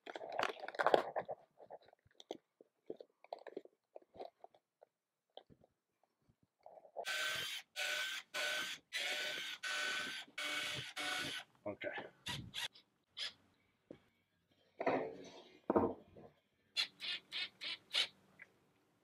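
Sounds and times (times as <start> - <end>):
cordless drill driving screws: 7.1 - 11.5.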